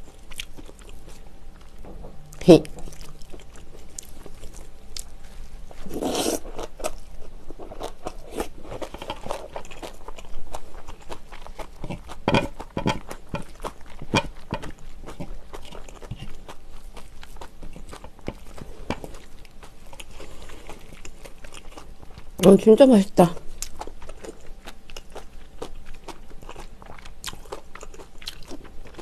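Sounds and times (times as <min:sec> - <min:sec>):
wet chewing and mouth sounds: 0:00.0 - 0:22.6, 0:23.4 - 0:29.0.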